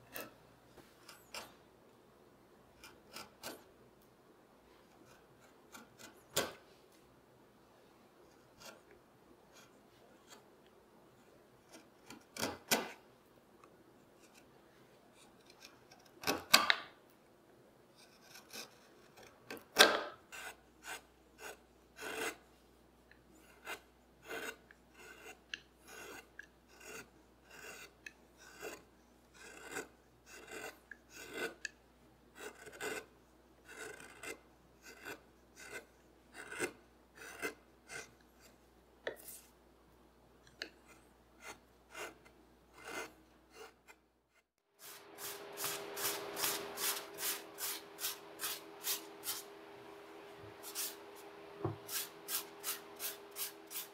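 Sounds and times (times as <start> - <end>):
carving gouge scraping wood: 0.1 - 0.4, 2.8 - 3.7, 4.9 - 6.5, 8.3 - 8.9, 11.6 - 13.0, 15.1 - 16.6, 18.0 - 22.5, 23.4 - 39.5, 40.5 - 49.5, 50.6 - 51.0.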